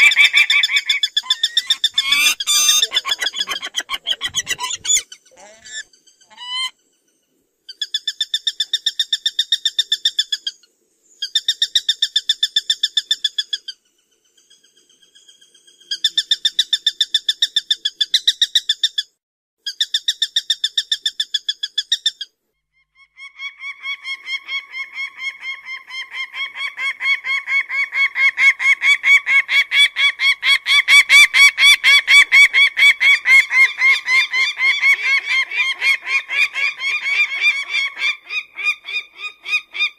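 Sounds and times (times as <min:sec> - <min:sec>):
falcon calling: 0:00.0 - 0:06.7
low falcon chatter: 0:00.0 - 0:06.7.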